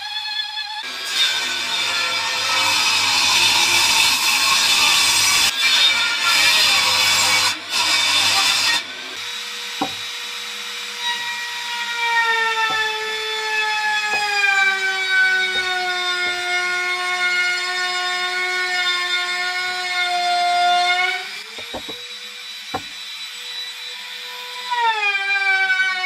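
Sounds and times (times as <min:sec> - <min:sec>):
table saw cutting: 0:00.9 - 0:25.6
router cutting wood: 0:05.4 - 0:25.3.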